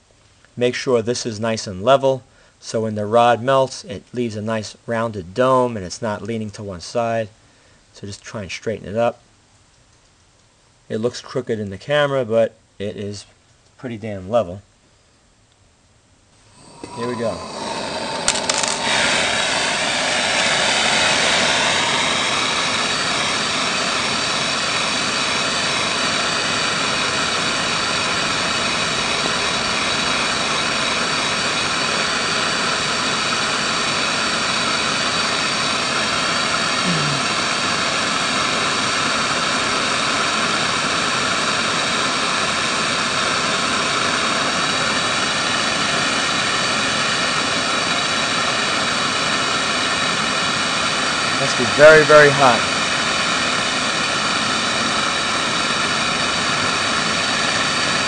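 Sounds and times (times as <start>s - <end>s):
gas torch flame hissing: 16.4s - 58.0s.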